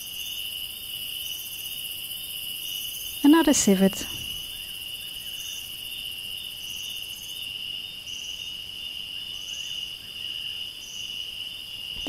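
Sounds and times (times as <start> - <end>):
high insect chirp: 0.0 - 12.0
insects trilling: 0.0 - 12.0.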